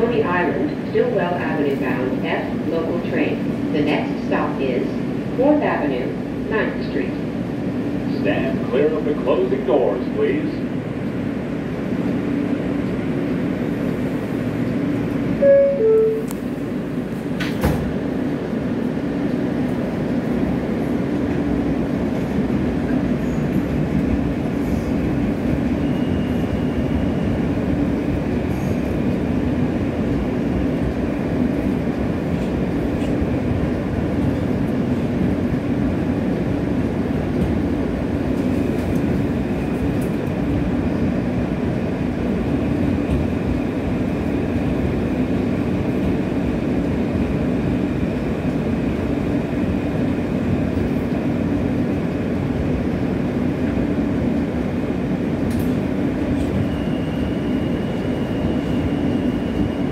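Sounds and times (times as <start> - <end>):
subway train running noise: 0.0 - 59.9
two-note door chime: 15.4 - 16.3.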